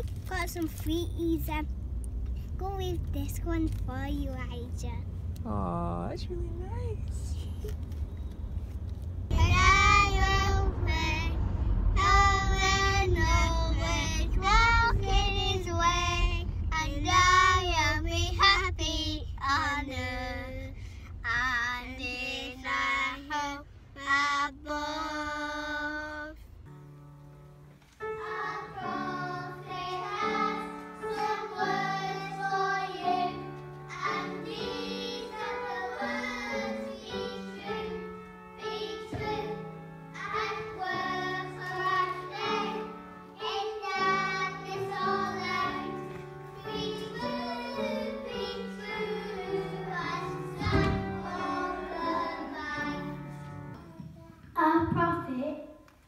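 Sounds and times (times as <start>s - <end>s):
car cabin rumble: 0.0s - 26.4s
children singing: 28.2s - 39.6s, 40.2s - 53.3s.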